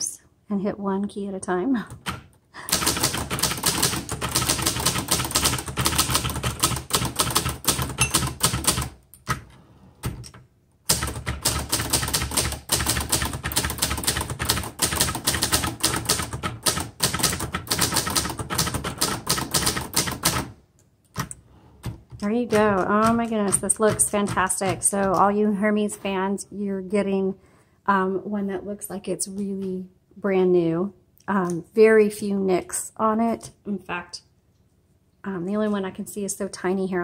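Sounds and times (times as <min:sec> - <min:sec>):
typewriter keystrokes clattering: 0:02.0 - 0:25.3.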